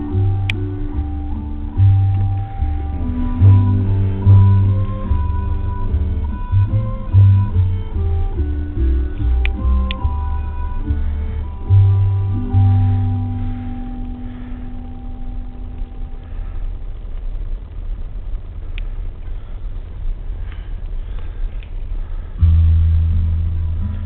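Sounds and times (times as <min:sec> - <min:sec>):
music with held notes: 0:00.0 - 0:16.5, 0:22.4 - 0:24.0
car driving rumble: 0:00.0 - 0:24.0.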